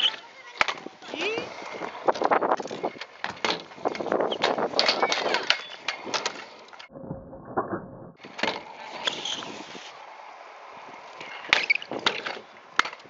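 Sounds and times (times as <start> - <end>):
scooter wheels rolling on concrete: 0.0 - 6.9, 8.2 - 13.0
scooter deck clacks and knocks: 2.1 - 6.5, 11.5 - 13.0.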